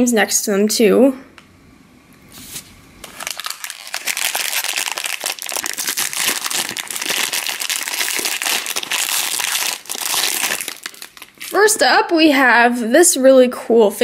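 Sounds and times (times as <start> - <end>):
foil wrapper crinkling: 3.0 - 11.8.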